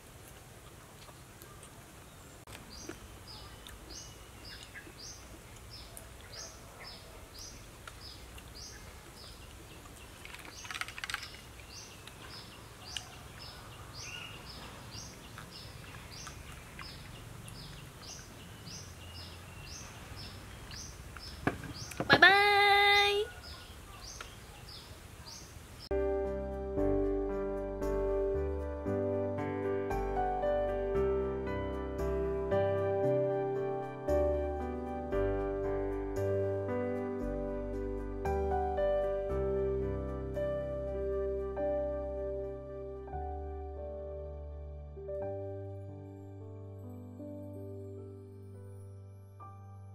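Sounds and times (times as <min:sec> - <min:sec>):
outdoor background noise: 0:00.0 - 0:49.9
bird chirping: 0:01.4 - 0:25.9.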